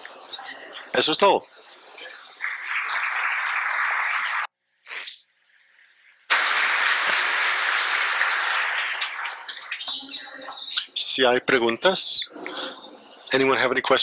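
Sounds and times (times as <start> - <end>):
audience applauding: 2.4 - 4.5, 6.3 - 9.9.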